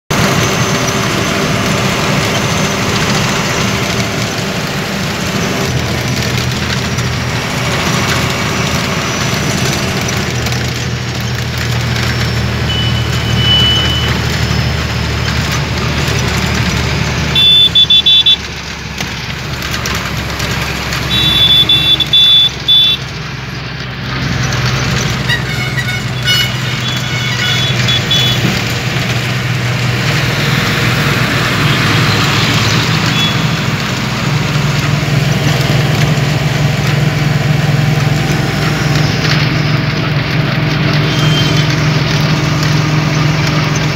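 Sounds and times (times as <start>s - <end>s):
vehicle engine and road noise: 0.0s - 43.9s
vehicle horns beeping: 12.6s - 14.6s, 17.1s - 18.5s, 20.8s - 23.2s, 25.0s - 28.7s, 32.9s - 33.8s, 40.9s - 42.3s.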